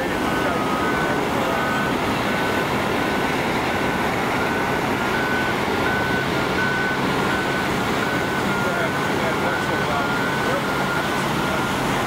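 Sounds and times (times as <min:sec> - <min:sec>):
backup alarms beeping: 0:00.0 - 0:12.0
bulldozer diesel engines under load: 0:00.0 - 0:12.0.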